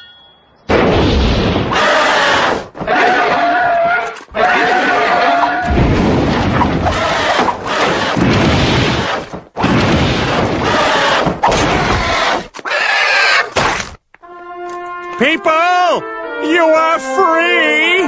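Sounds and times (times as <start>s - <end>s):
cartoon flame blasts: 0.7s - 3.4s, 4.3s - 12.6s.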